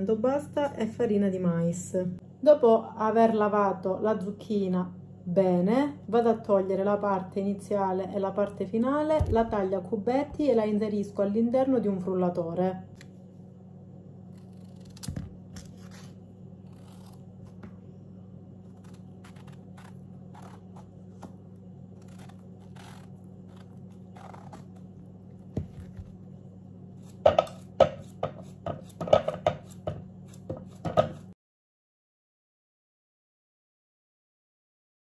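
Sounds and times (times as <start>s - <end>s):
steady low hum: 0.0s - 31.4s
knife cutting courgette: 14.4s - 17.7s, 18.7s - 21.4s, 27.0s - 31.3s.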